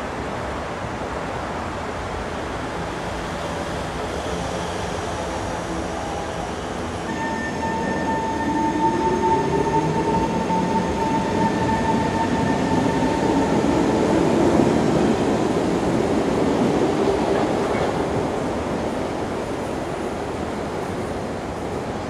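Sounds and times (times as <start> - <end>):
steady high tone: 7.0 - 14.9.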